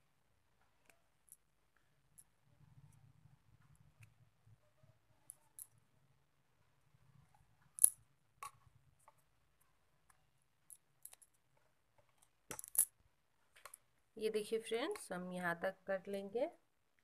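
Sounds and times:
bangles clinking: 5.1 - 6.0, 7.6 - 8.7, 12.4 - 13.0.

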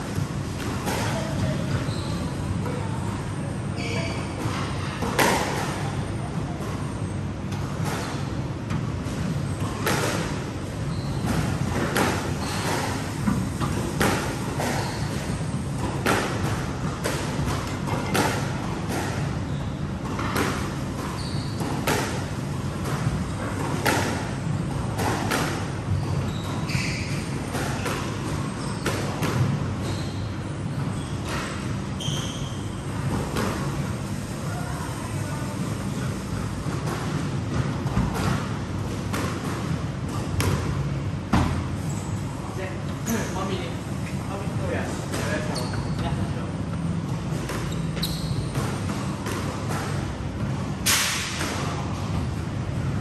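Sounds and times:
squash ball smacks: 37.8 - 41.6, 50.8 - 51.8.

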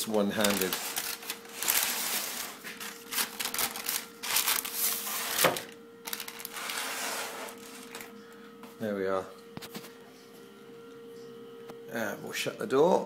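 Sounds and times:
steady hum: 0.0 - 13.0
baking tray scraping and rattling: 0.2 - 3.4, 6.5 - 8.0.

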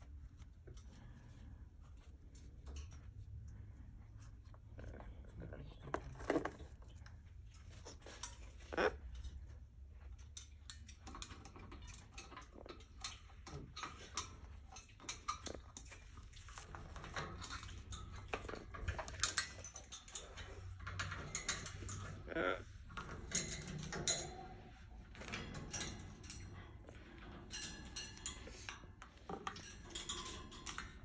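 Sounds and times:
beak and claws tapping metal bars: 10.2 - 24.6, 25.3 - 31.0
parrot calls: 22.2 - 22.7.

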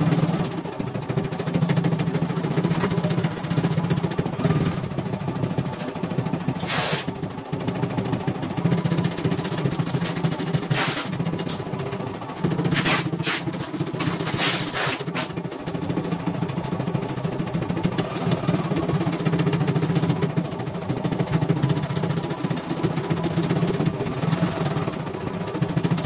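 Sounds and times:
embroidery machine stitching: 5.7 - 7.4, 8.8 - 11.7, 12.4 - 15.5.

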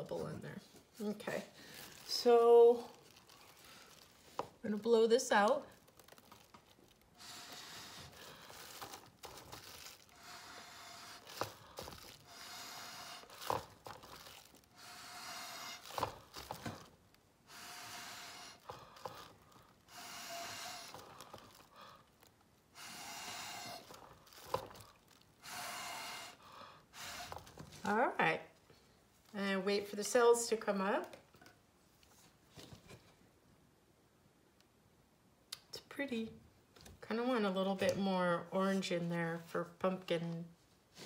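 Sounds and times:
puffs through a drinking straw: 7.2 - 8.8, 25.4 - 27.4.

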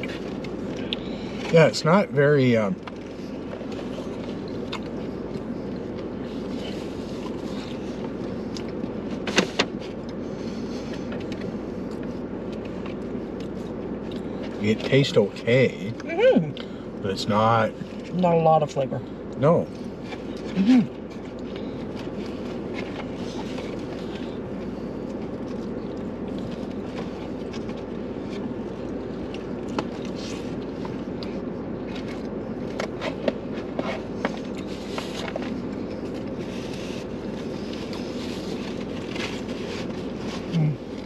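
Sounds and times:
car cabin hum: 0.0 - 41.0.

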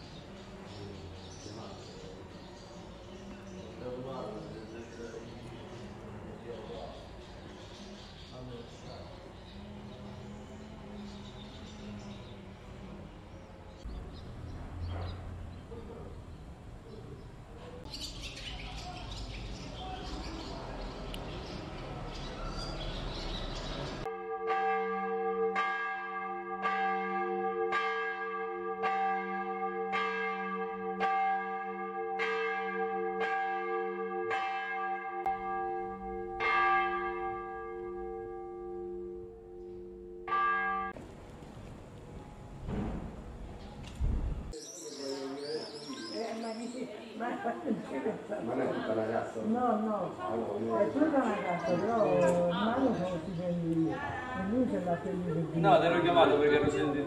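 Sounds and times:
faint outdoor background: 0.0 - 57.0
church bell tolling: 24.0 - 41.0.

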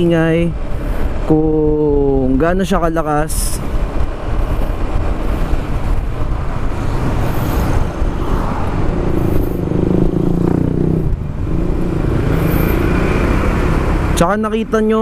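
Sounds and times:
traffic noise: 0.0 - 15.0
scooter engine drone: 3.8 - 14.7.

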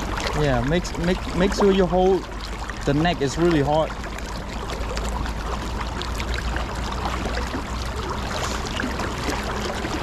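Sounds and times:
small splashes: 0.0 - 10.0.

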